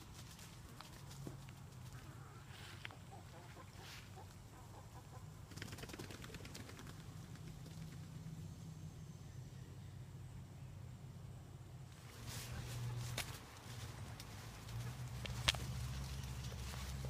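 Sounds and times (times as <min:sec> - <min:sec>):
faint chicken clucks: 0:01.8 - 0:05.4
chickens flapping wings: 0:05.4 - 0:08.2.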